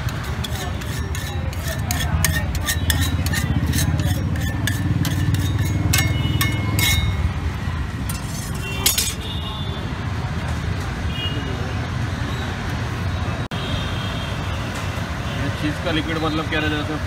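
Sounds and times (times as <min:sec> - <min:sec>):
metal spatula scraping on griddle: 0:00.0 - 0:09.4.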